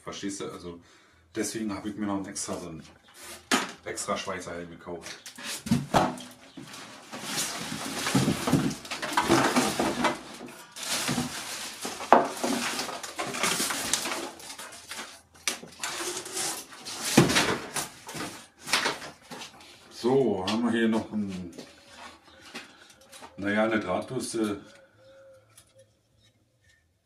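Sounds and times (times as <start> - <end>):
plastic wrap crinkling: 6.4 - 20.0
cardboard box rustling: 6.5 - 19.6.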